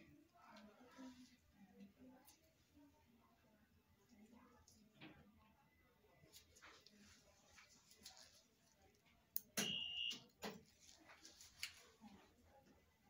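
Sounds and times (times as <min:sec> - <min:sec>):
high electronic beep: 0:09.6 - 0:10.2.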